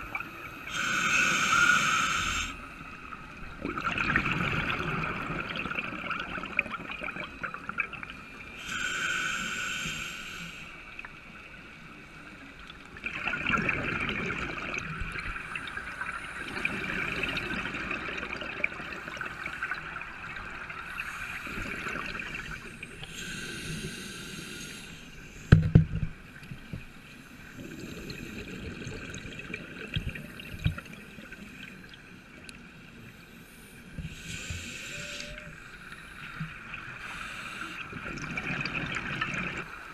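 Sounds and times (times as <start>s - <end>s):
diver breathing through regulator: 0.7s - 2.6s, 8.6s - 10.8s, 23.0s - 25.5s, 33.5s - 36.0s.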